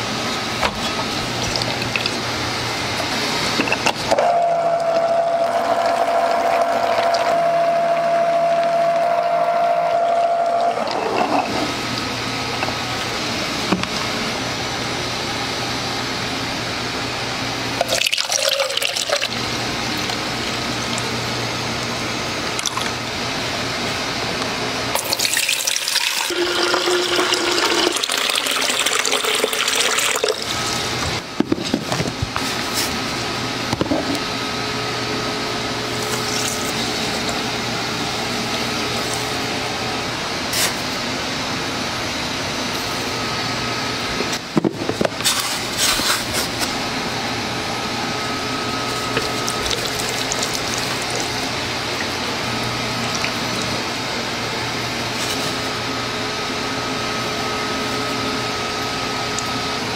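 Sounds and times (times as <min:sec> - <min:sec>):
water pouring into plastic jug: 0:25.0 - 0:30.6, 0:49.2 - 0:52.2.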